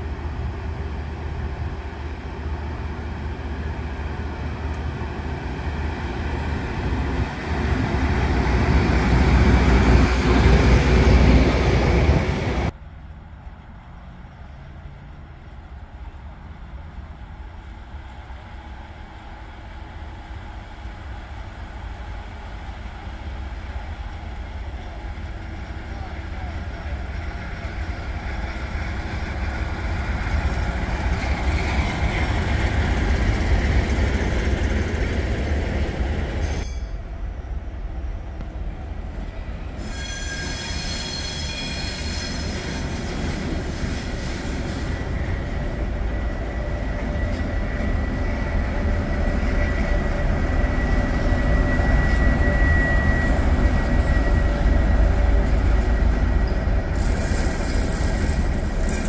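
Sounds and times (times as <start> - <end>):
diesel locomotive and wagons rumbling: 0.0 - 59.0
high wheel squeal: 39.8 - 43.1.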